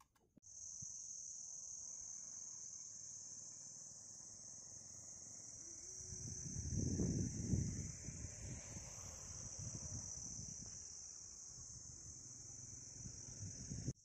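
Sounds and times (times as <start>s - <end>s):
insects droning: 0.4s - 14.0s.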